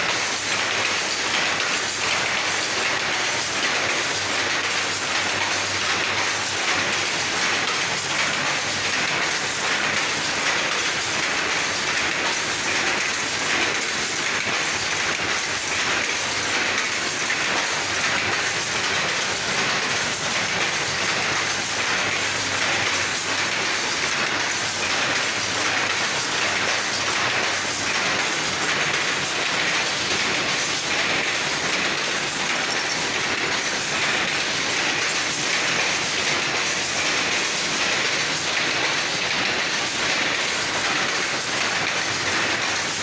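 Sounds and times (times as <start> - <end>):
power loom clattering: 0.0 - 43.0.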